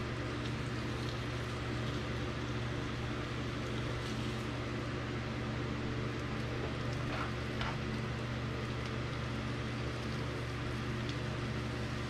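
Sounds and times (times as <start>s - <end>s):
range hood fan humming: 0.0s - 12.0s.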